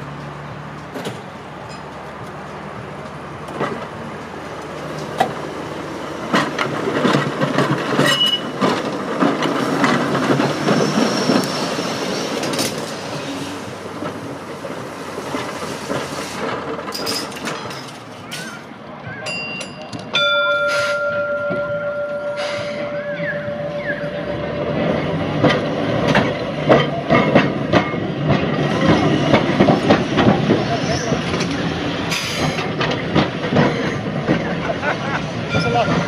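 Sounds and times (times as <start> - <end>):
electric tram rumbling past: 0.0 - 36.0
wheels clicking over rail: 3.0 - 18.7
high wheel squeals: 8.0 - 8.6, 10.6 - 13.6, 20.6 - 24.8.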